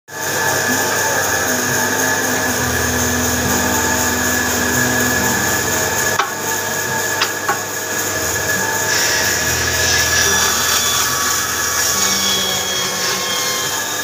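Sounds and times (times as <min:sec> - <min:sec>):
woodworking machine whining: 0:00.1 - 0:14.0.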